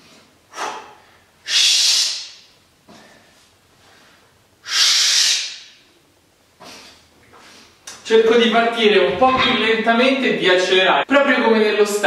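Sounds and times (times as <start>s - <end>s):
man breathing forcefully: 0.0s - 5.8s.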